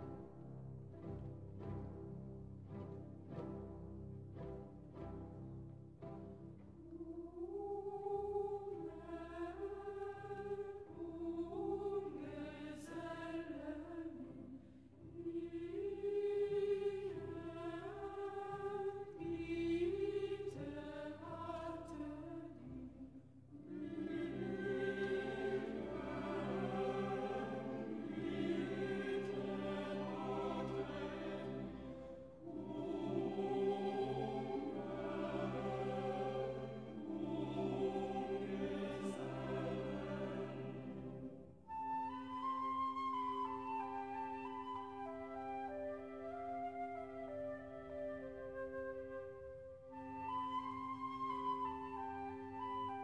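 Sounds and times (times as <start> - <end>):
choir singing slow chords: 6.8 - 45.7.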